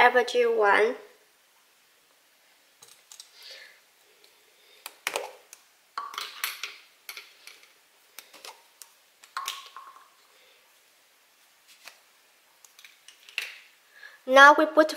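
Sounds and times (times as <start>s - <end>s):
plastic molds clicking and knocking: 9.2s - 10.1s.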